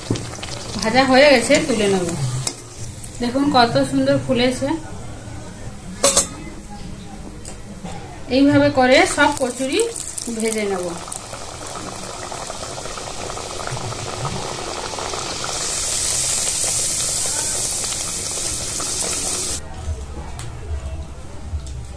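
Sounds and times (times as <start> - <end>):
food deep-frying in hot oil: 0.0 - 3.2, 9.1 - 19.6.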